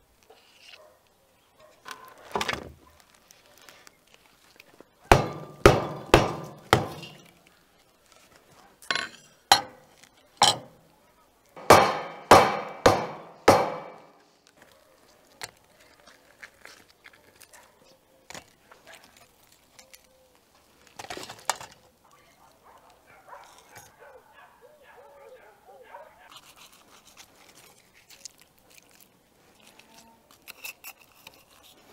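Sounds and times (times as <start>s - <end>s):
crust clicks and scrapes: 0.2s - 1.0s, 1.6s - 11.6s, 14.2s - 24.2s, 26.2s - 31.9s
axe handle knocking salt crust: 5.1s - 7.3s.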